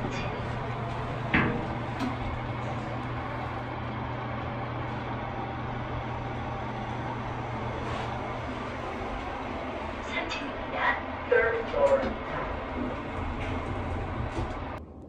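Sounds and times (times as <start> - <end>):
elevator thump: 0.0 - 4.1
elevator click: 0.0 - 5.2
elevator hum: 0.0 - 15.0.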